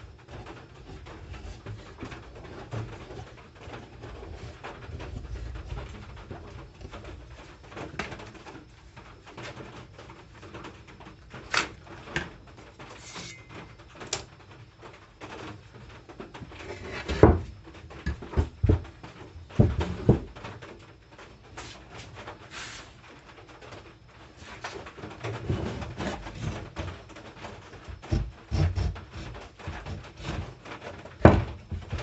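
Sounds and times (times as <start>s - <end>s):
wooden board and tools knocking: 16.4s - 20.5s, 27.9s - 32.0s.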